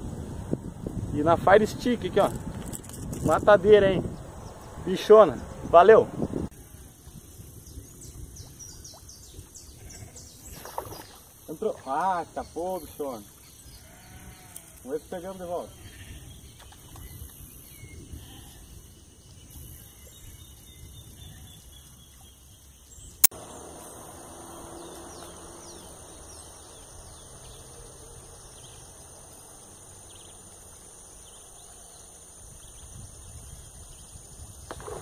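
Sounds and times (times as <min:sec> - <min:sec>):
insects buzzing: 0:22.6 - 0:35.0.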